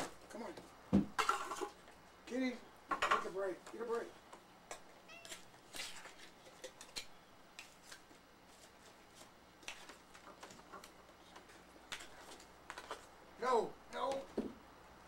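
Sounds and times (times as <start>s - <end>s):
cat meowing: 5.0s - 5.4s.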